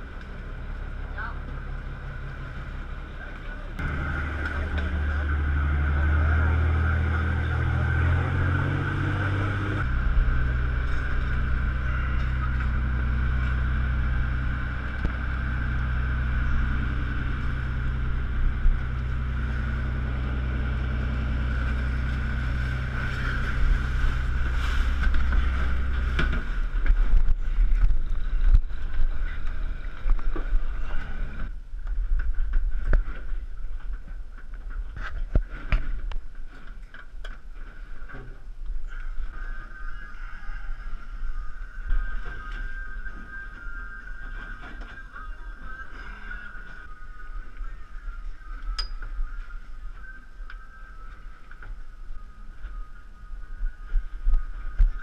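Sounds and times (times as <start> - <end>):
boat engine running: 0.0 - 34.2.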